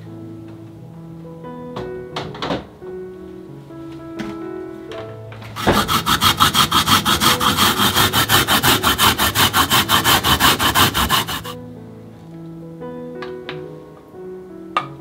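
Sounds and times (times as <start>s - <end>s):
potato rasping on grater: 5.6s - 11.6s.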